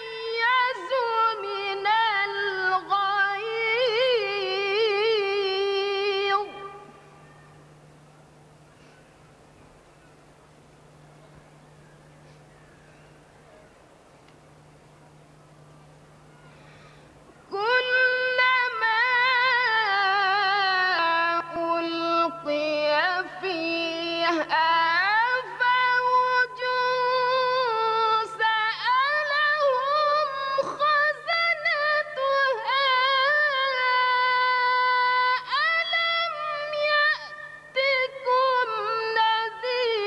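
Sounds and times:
woman reciting melodically: 0:00.0 - 0:07.1, 0:17.5 - 0:40.0.

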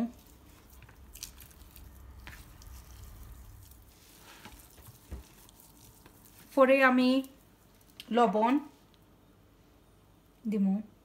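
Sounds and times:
potatoes squelching being mashed: 0:00.0 - 0:08.2.

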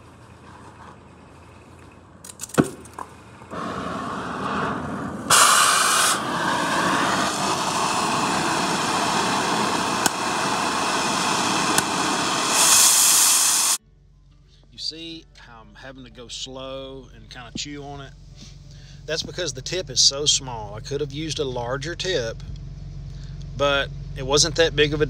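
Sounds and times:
torch ignition pop: 0:02.4 - 0:13.8
cutting torch flame hissing: 0:03.5 - 0:13.8
harsh torch blast: 0:03.5 - 0:13.8.

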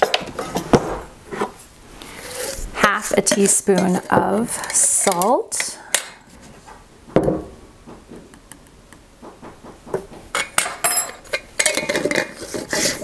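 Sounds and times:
spoon clinking in glass jar: 0:10.5 - 0:12.2.

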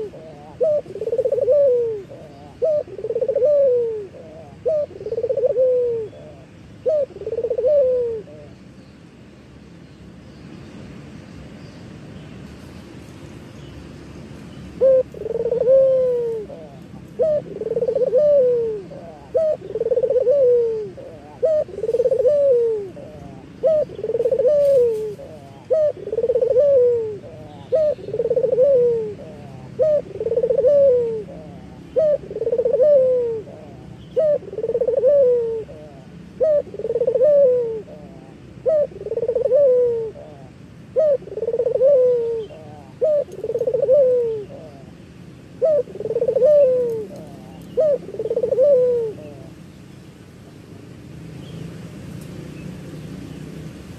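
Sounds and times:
dove cooing: 0:00.0 - 0:08.6, 0:14.8 - 0:45.0, 0:45.6 - 0:49.6.

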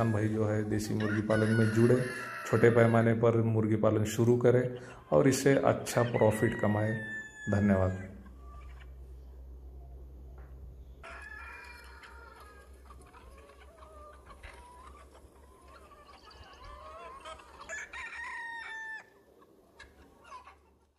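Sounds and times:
rooster crowing: 0:00.0 - 0:03.3, 0:04.8 - 0:09.0, 0:11.0 - 0:13.0, 0:15.6 - 0:19.3
chickens clucking: 0:00.0 - 0:09.4, 0:10.8 - 0:20.9.

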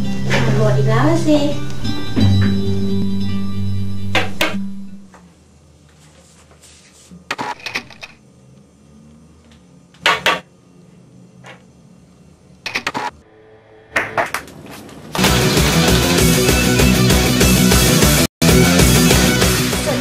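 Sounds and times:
music: 0:00.0 - 0:05.1, 0:15.2 - 0:20.0.

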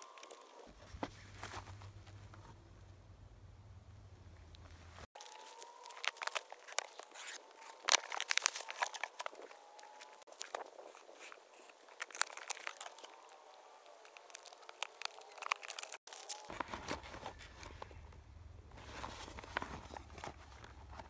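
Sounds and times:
cardboard rustling and crinkling: 0:00.0 - 0:02.5, 0:04.9 - 0:21.0
sharp scrapes and clicks: 0:05.1 - 0:18.0
packing tape tearing: 0:05.2 - 0:17.8.

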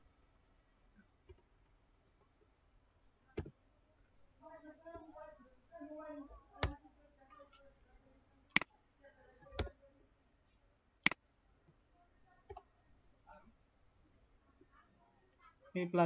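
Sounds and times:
keyboard and mouse clicks: 0:03.3 - 0:03.6, 0:06.6 - 0:06.8, 0:08.5 - 0:08.7, 0:09.4 - 0:09.8.

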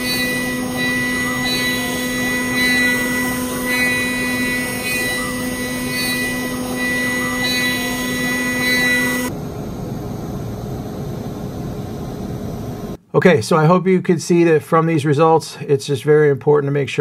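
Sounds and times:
router spindle whine cutting foam: 0:00.0 - 0:09.3.

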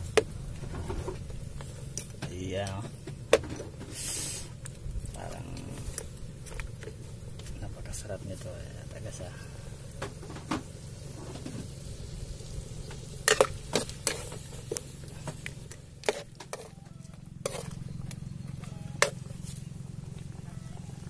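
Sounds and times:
steady low hum: 0:00.0 - 0:21.0
metal spoon scraping a wok: 0:13.2 - 0:14.7, 0:15.7 - 0:19.5.

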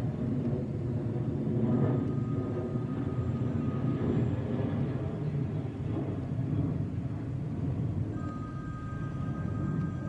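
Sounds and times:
faint high whine: 0:00.0 - 0:10.0
jet airliner rumble overhead: 0:00.0 - 0:10.0.

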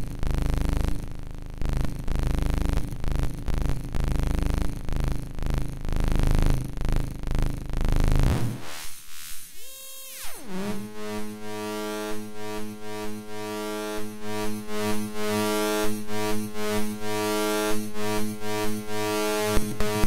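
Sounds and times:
synthesizer buzzing drone: 0:08.2 - 0:20.0.

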